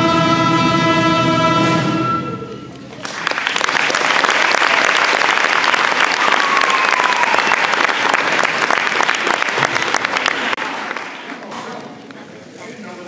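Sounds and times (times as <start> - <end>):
crowd clapping: 2.9 - 12.0.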